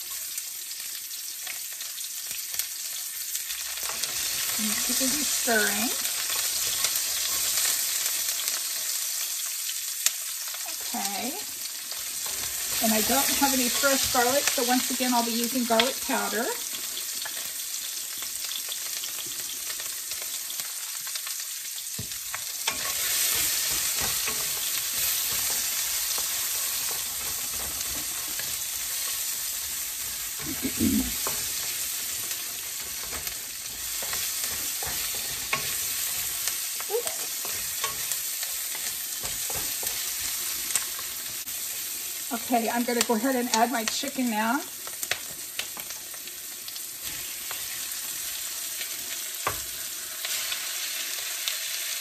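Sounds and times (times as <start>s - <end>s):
onions sizzling in a wok: 0.0s - 52.0s
spatula scraping a pan: 3.8s - 8.5s, 11.9s - 15.1s, 22.0s - 42.1s.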